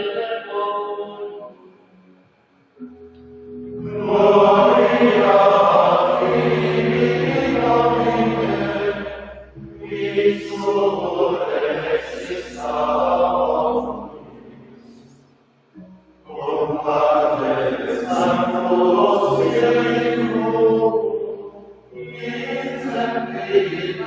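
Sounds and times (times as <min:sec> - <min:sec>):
men singing chant in unison: 0:21.9 - 0:24.0.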